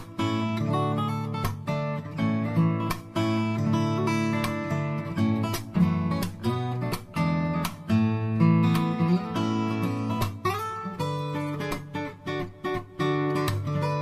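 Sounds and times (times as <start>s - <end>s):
acoustic guitar strummed and plucked: 0.0s - 14.0s.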